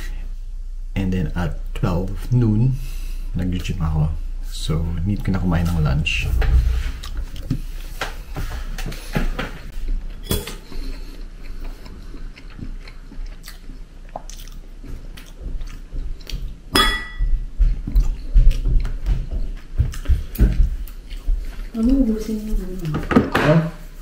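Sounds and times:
man chewing: 6.3s - 16.7s, 17.4s - 21.7s.

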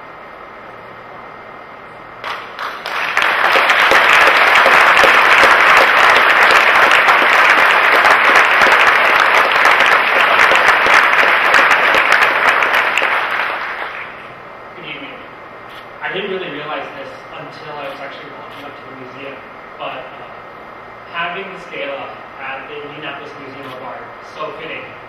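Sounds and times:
crowd applauding: 2.2s - 14.3s.

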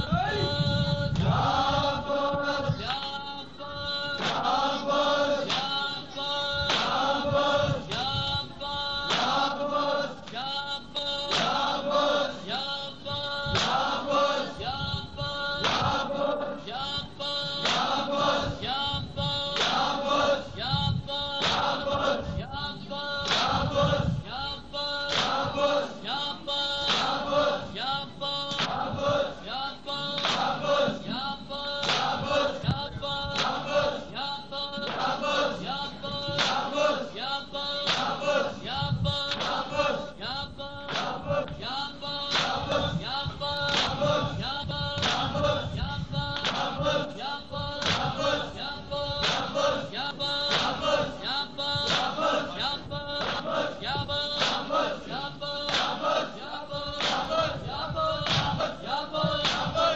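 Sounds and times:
men chanting together: 0.0s - 59.9s
hands slapping chests: 31.8s - 32.2s, 47.8s - 48.1s, 59.4s - 59.7s.

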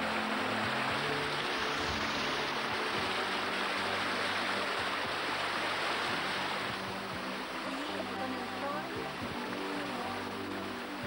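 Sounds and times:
water rushing over rocks: 0.0s - 11.0s.

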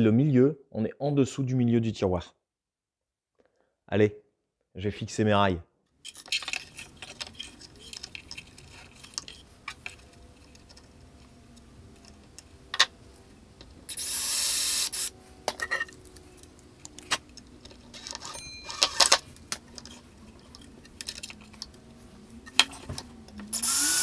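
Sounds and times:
cordless drill into chipboard: 13.9s - 15.1s, 23.5s - 24.0s.

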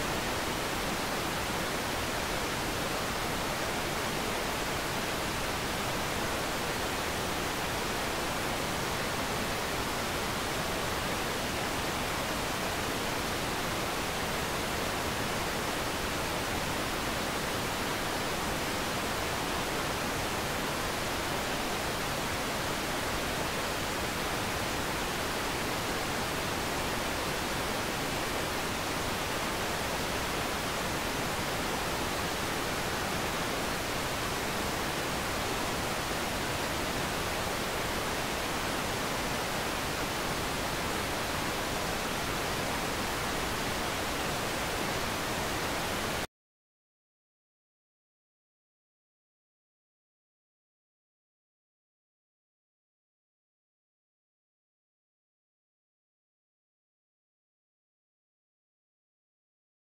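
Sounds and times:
television static hiss: 0.0s - 46.3s.

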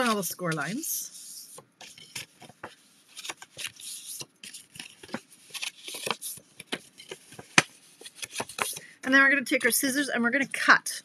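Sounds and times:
paper crinkling and rustling: 0.0s - 0.8s, 1.5s - 8.9s.

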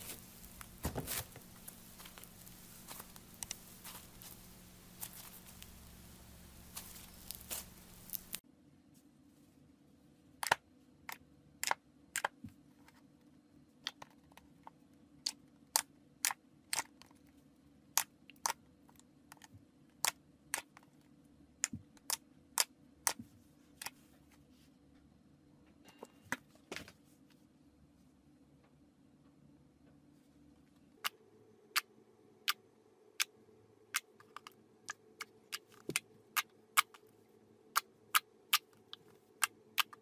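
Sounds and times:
slime squished with crackling hiss: 0.0s - 8.4s.

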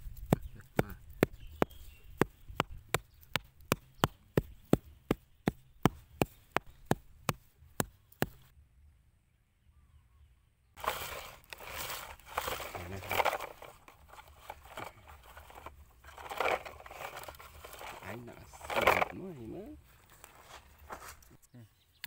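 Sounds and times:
rustling: 10.8s - 21.4s.

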